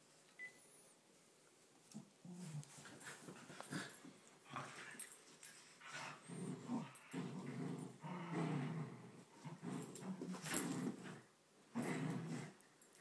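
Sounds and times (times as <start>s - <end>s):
dogs growling: 5.8s - 12.6s.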